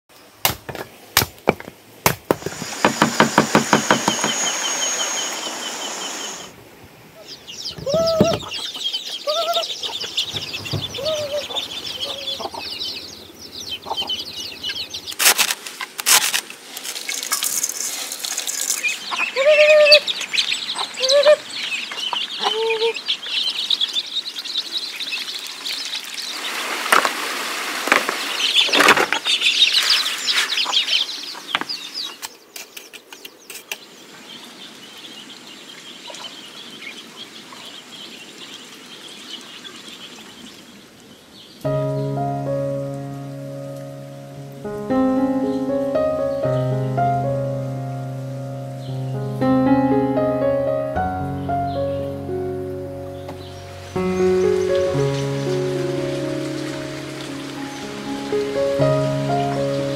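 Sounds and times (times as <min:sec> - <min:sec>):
knocks: 0:01.5 - 0:04.4, 0:10.3 - 0:11.4
chicks peeping: 0:02.7 - 0:06.5, 0:07.2 - 0:15.2, 0:18.8 - 0:26.5, 0:28.4 - 0:42.2, 0:51.1 - 0:59.9
hen clucking: 0:07.2 - 0:15.1, 0:19.0 - 0:23.1
rustling: 0:15.0 - 0:19.3.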